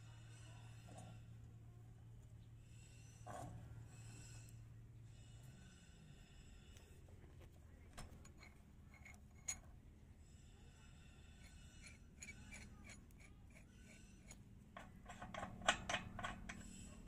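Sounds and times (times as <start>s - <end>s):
metal wrench clicking and rattling: 11.8s - 16.8s.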